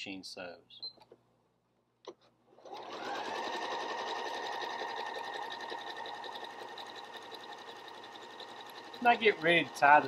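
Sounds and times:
sewing machine stitching rattle: 0:02.6 - 0:10.0.

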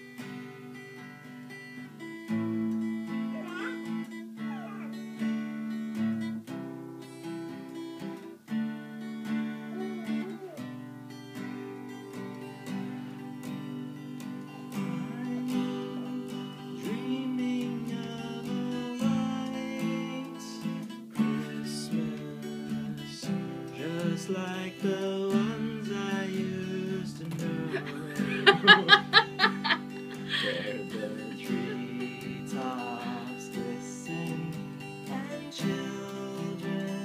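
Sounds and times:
acoustic guitar strummed: 0:00.0 - 0:37.0
voice making short loud sounds: 0:03.3 - 0:05.0.

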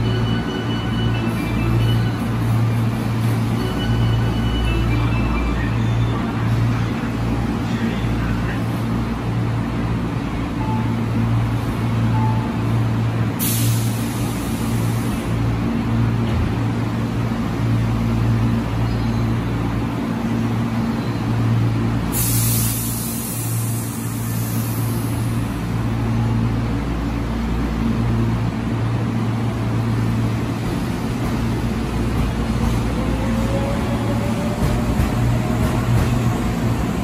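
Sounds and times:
compressed air hissing: 0:22.1 - 0:25.2.

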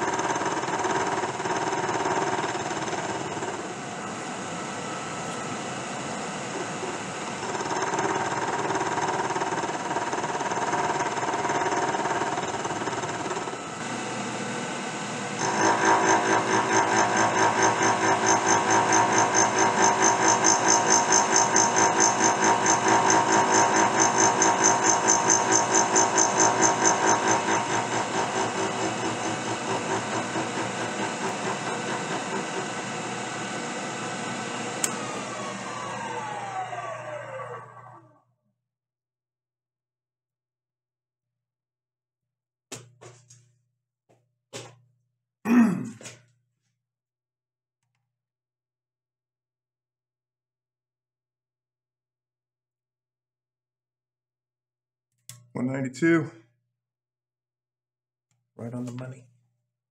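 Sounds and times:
milling machine cutting steel: 0:00.1 - 0:38.0.

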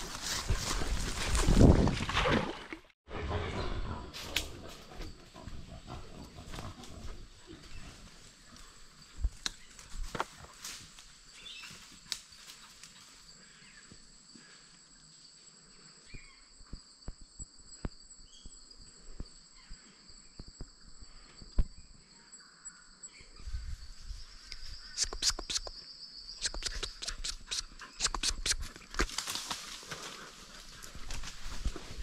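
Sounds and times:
insects trilling: 0:04.1 - 0:32.0
snaps and crunches: 0:26.4 - 0:29.9.

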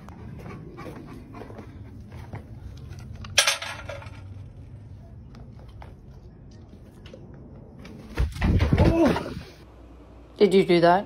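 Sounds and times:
metal bowl clanging on concrete: 0:03.4 - 0:04.3.

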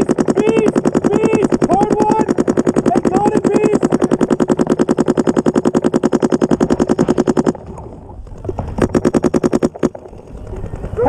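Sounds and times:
paintball marker rapid fire: 0:00.0 - 0:07.8, 0:08.4 - 0:10.8.

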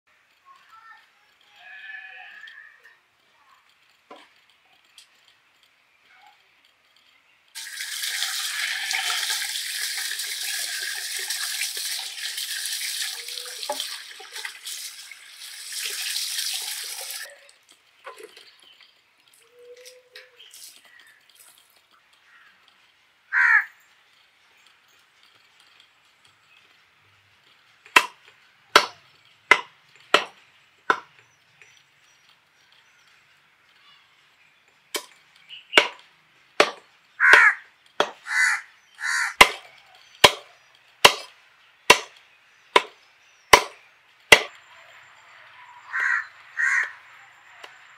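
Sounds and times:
water splashing in a metal pot: 0:07.6 - 0:17.7
cleaver chopping into wood block: 0:28.0 - 0:28.2, 0:28.8 - 0:31.1, 0:35.8 - 0:36.0, 0:36.6 - 0:38.2, 0:39.4 - 0:39.6, 0:40.2 - 0:41.3, 0:41.9 - 0:42.1, 0:42.8 - 0:44.5.

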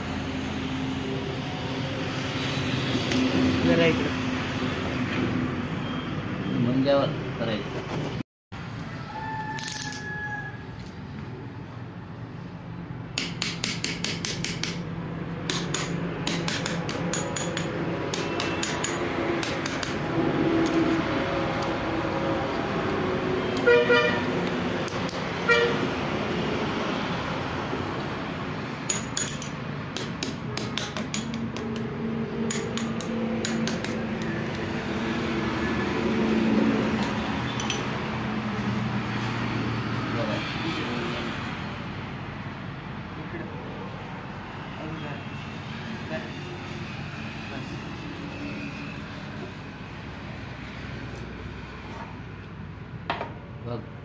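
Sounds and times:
ringing clinks of metal: 0:37.6 - 0:37.9.

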